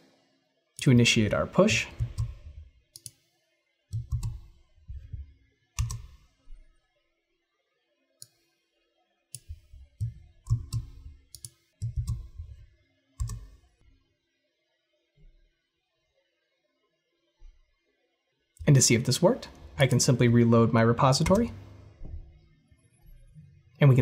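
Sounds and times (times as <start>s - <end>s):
keyboard clicks: 1.7s - 3.1s, 4.0s - 5.2s, 5.8s - 6.3s, 9.4s - 12.6s, 13.2s - 13.6s, 21.2s - 21.9s
computer mouse clicks: 1.9s - 3.2s, 3.9s - 5.2s, 5.8s - 6.3s, 9.4s - 13.7s.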